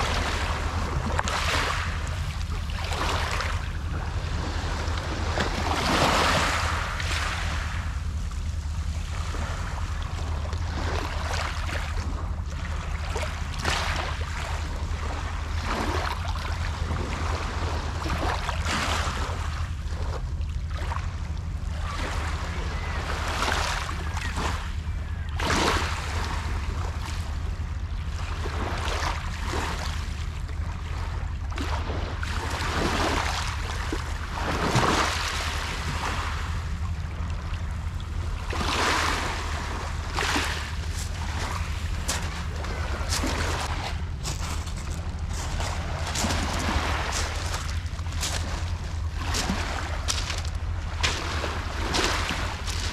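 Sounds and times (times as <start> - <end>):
steady low rumble: 0.0 - 52.9
waves washing over pebble beach: 38.6 - 48.6.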